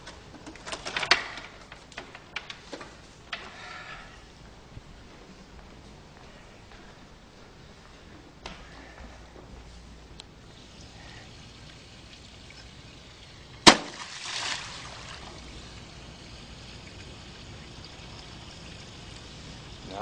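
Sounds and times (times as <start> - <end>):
water splash: 13.5 - 17.2
object smacking water: 13.6 - 15.4.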